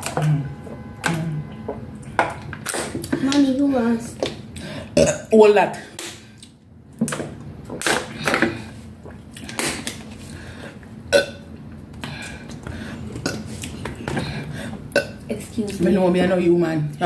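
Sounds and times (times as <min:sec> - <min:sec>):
burps: 0:04.8 - 0:05.4, 0:11.1 - 0:11.5, 0:13.2 - 0:15.3.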